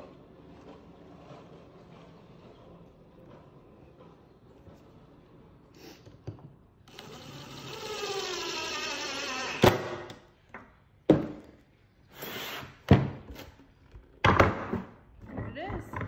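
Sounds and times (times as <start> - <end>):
cordless drill whirring: 6.8 - 10.0.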